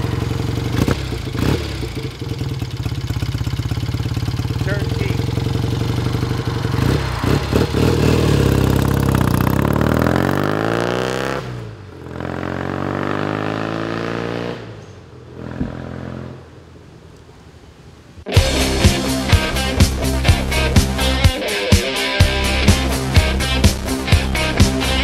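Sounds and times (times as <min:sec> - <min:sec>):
motorcycle engine accelerating: 0:00.0 - 0:16.6.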